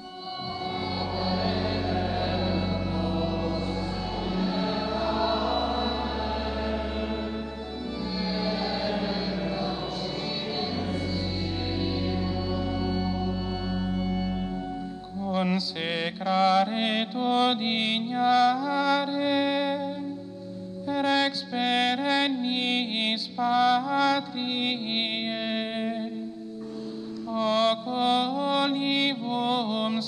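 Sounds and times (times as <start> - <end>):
choir singing a sacred chant: 0.0 - 17.0
sustained low accompaniment: 0.0 - 17.0.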